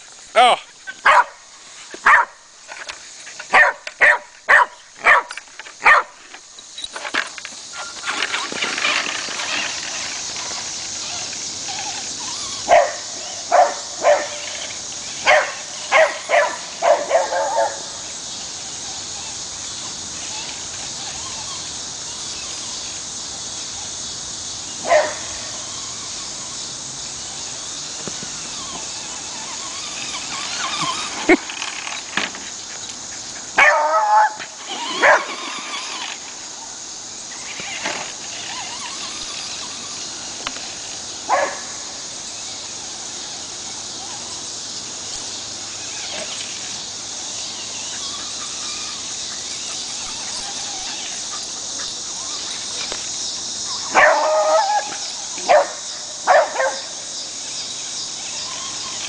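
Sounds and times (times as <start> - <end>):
steady high hiss: 0.0 - 59.0
dog barking: 1.0 - 1.4, 2.0 - 2.4, 3.5 - 6.1, 12.7 - 14.4, 15.3 - 17.8, 24.9 - 25.2, 33.6 - 34.4, 35.0 - 35.2, 41.3 - 41.6, 53.9 - 54.9, 55.5 - 56.8.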